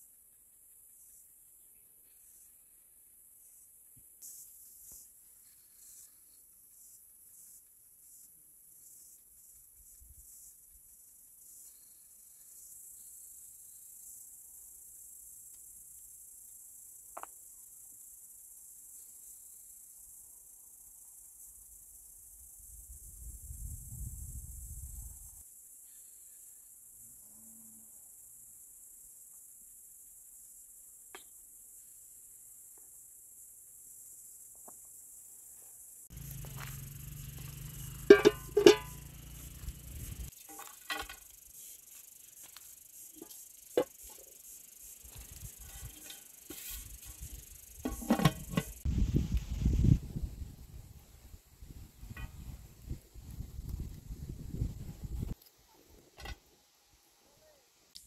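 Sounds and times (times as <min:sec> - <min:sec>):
crickets chirring: 0:00.0 - 0:55.7
metal cookware knocking and clinking: 0:38.1 - 0:39.0.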